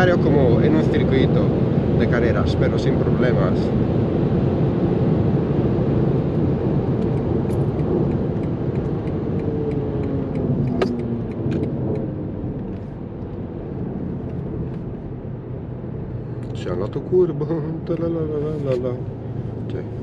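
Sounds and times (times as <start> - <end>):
sharp click: 7.0 - 12.8.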